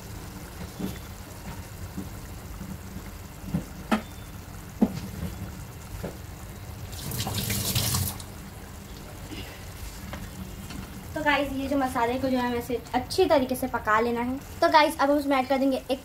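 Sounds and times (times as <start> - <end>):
gravy bubbling in a pan: 0.0 - 12.4.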